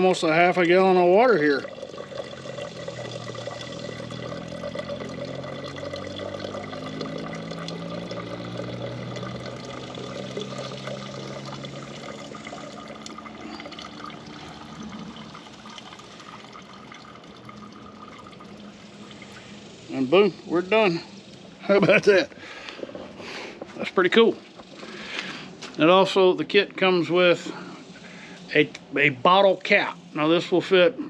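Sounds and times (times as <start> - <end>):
water trickling into plastic jug: 0.0 - 20.6.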